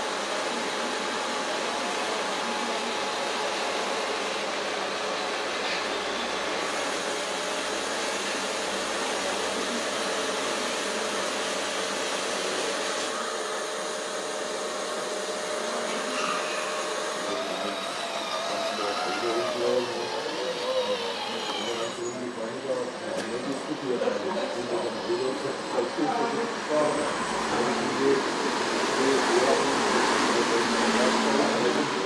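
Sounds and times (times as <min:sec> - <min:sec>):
model trucks whirring: 0:15.8 - 0:22.4.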